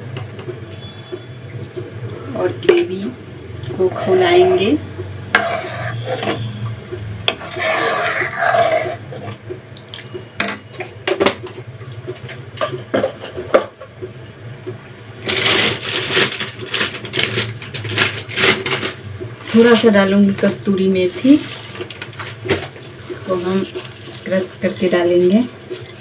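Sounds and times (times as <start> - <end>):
metal cookware clinking: 1.4 - 4.7.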